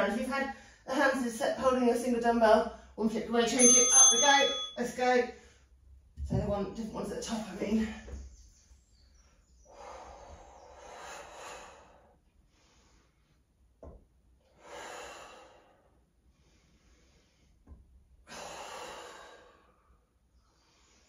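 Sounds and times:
person breathing hard: 0:09.7 - 0:13.4, 0:14.5 - 0:17.6, 0:18.2 - 0:21.0.

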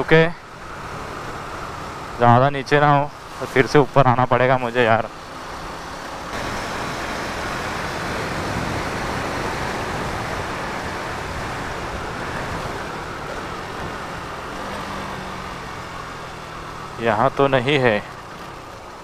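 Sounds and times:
wind rushing over microphone: 0:06.3 - 0:15.6.

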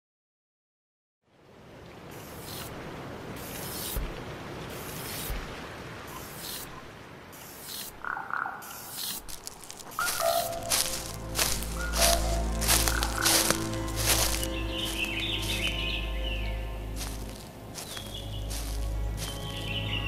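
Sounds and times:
short hissing swishes: 0:03.4 - 0:04.1, 0:04.7 - 0:05.5, 0:06.2 - 0:06.7, 0:07.4 - 0:08.0, 0:08.6 - 0:10.6
music: 0:10.4 - 0:20.0.

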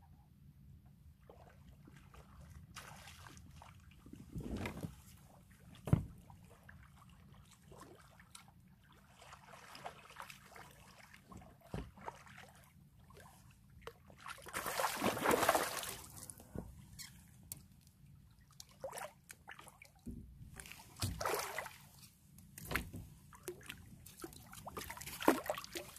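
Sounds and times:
fish splashing in water: 0:14.4 - 0:16.1, 0:23.5 - 0:25.9.

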